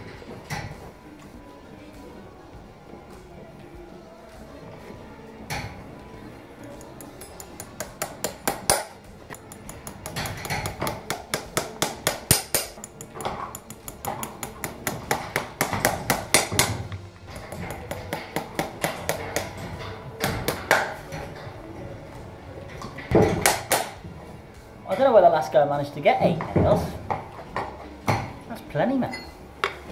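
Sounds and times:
hammer tapping horseshoe nails: 6.6s - 21.5s, 22.8s - 24.0s.

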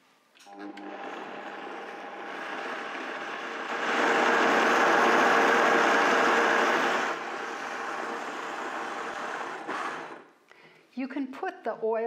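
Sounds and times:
blender running: 0.5s - 10.4s.

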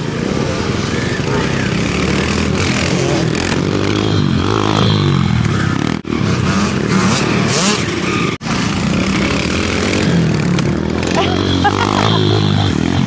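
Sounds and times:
small motorbike engines revving: 0.0s - 13.0s.

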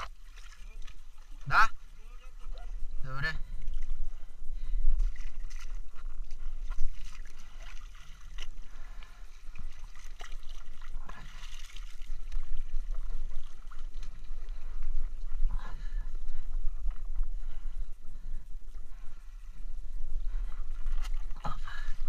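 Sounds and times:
sea water sloshing around rocks: 5.0s - 14.6s.

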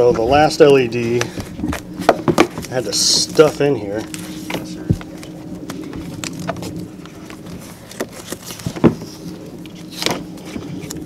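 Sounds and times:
steady low hum: 0.0s - 11.0s
rustling handling noises: 0.2s - 11.0s.

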